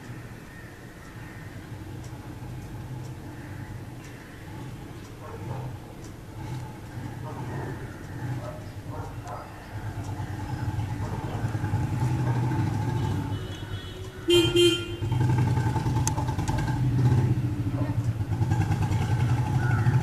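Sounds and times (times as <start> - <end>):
vehicle engine droning: 0.0 - 20.0
short horn toots: 12.9 - 15.3.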